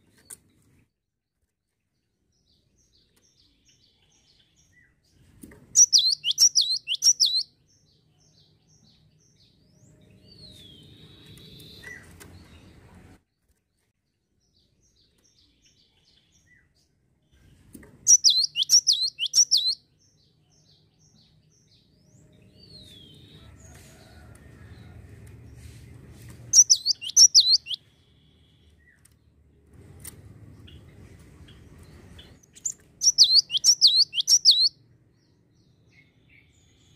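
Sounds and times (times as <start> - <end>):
bird chirping rapidly: 5.8 - 7.5, 18.1 - 19.8, 26.5 - 27.8, 32.2 - 34.8.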